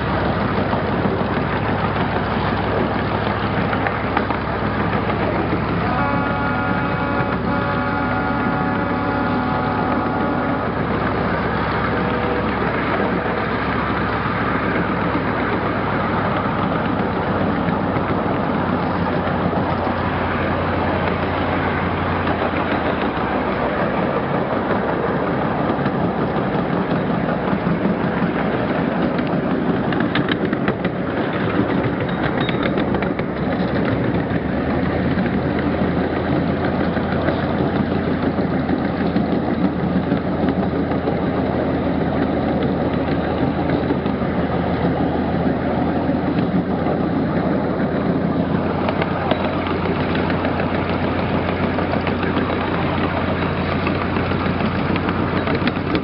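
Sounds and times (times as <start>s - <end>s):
low steady drone: 0.0s - 32.4s
train wheels rumbling on track: 0.0s - 56.0s.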